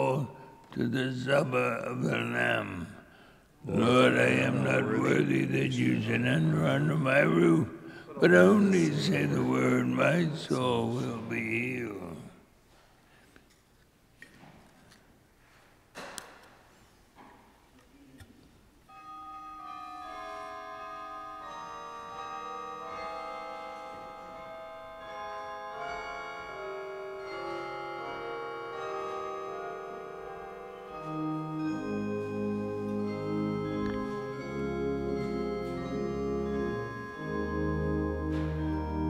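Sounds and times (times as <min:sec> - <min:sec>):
organ playing sustained chords: 0:00.0 - 0:02.7, 0:03.6 - 0:12.3, 0:20.5 - 0:39.0
deep organ bass notes: 0:31.2 - 0:39.0.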